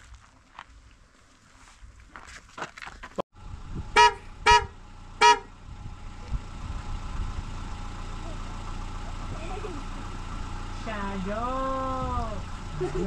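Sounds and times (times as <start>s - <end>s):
vehicle engine running: 3.4s - 13.0s
vehicle horn honking: 3.9s - 5.6s.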